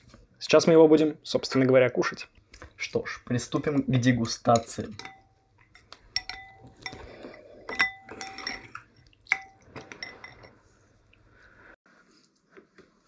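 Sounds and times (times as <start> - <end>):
metal utensils clinking on pot: 3.2 - 10.6.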